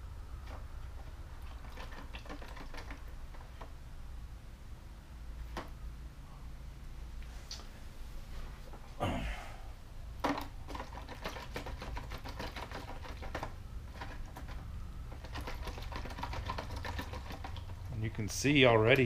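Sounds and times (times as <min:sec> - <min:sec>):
steady low hum: 0:00.0 - 0:11.2, 0:11.8 - 0:19.0
resin prints rattling in tub: 0:01.4 - 0:03.1, 0:10.2 - 0:19.0.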